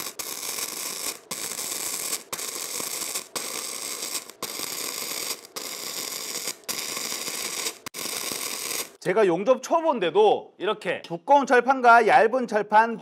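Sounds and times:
welding arc crackling and hissing: 0:00.0 - 0:09.0.

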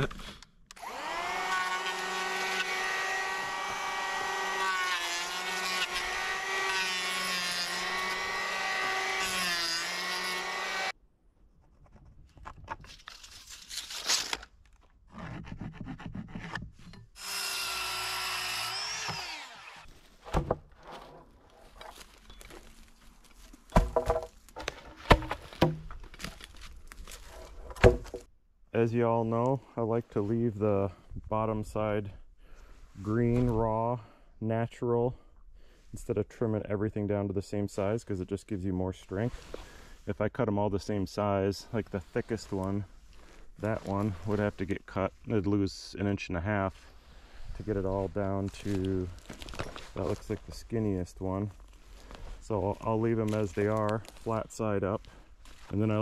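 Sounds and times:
electric planer whining: 0:00.8 - 0:10.9, 0:17.2 - 0:19.9
wood knocking while handled: 0:23.7 - 0:26.3.

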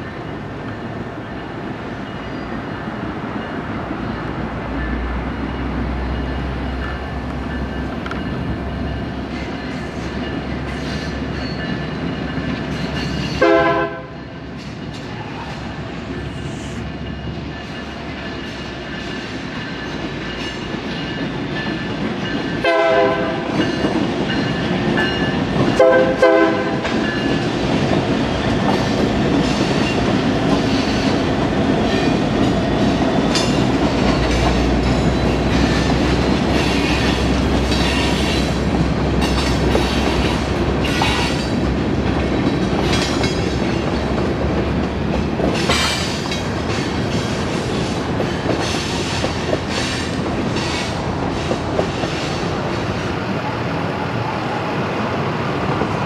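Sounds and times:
train rumbling past: 0:00.0 - 0:56.0
train horn blasts: 0:13.4 - 0:14.2, 0:22.6 - 0:23.6, 0:25.8 - 0:26.9
wheels clacking over rail joints: 0:17.1 - 0:53.2.

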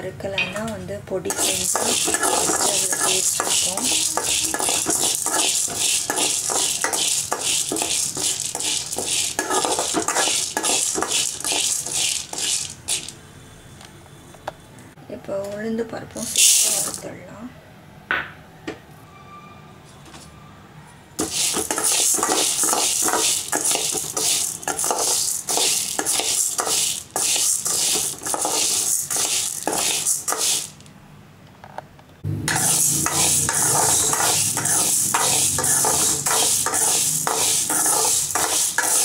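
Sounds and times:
lentils rattling in a pan: 0:01.3 - 0:13.2, 0:16.2 - 0:17.1, 0:21.2 - 0:30.8, 0:32.5 - 0:39.0
spoon scraping metal pan: 0:01.3 - 0:13.2, 0:21.2 - 0:30.8, 0:32.5 - 0:39.0.

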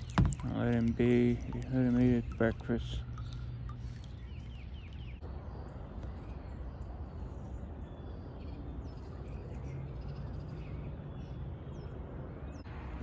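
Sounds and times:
rushing water: 0:00.0 - 0:04.4
wind: 0:00.0 - 0:13.0.

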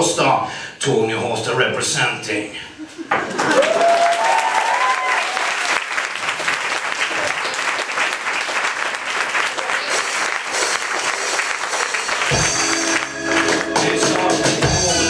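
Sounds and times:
audience applauding: 0:03.2 - 0:15.0
music with deep bass: 0:12.3 - 0:15.0.

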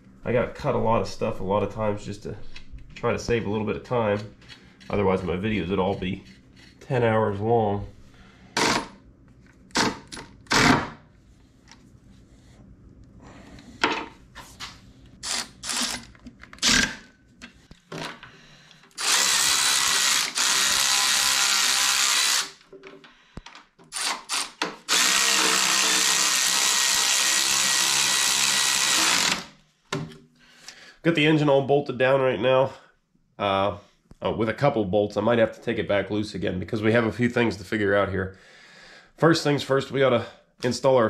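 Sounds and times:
electric ratchet running: 0:15.2 - 0:17.0, 0:19.0 - 0:22.6, 0:23.9 - 0:29.6.

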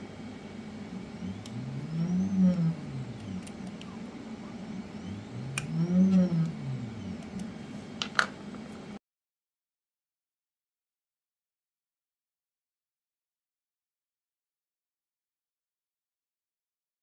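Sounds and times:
steady low hum: 0:00.0 - 0:09.0.

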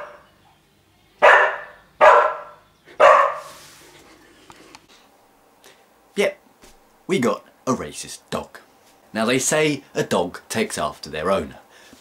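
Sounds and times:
small dog barking: 0:00.0 - 0:00.2, 0:01.2 - 0:03.5.

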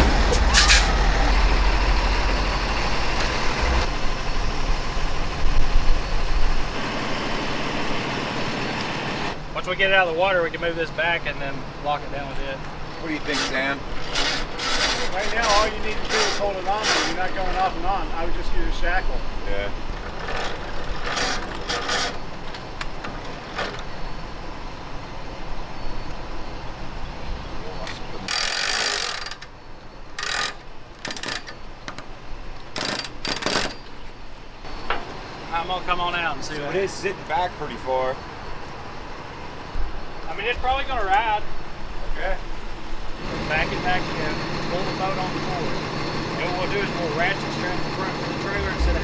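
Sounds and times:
truck diesel engine idling: 0:00.0 - 0:09.3, 0:43.2 - 0:49.0.

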